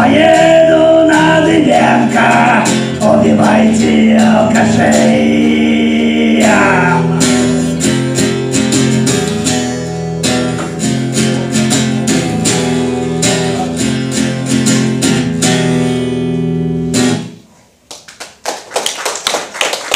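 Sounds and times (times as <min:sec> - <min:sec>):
acoustic guitar strumming chords: 0:00.0 - 0:17.4
hand clapping: 0:09.2 - 0:09.6, 0:17.8 - 0:19.9.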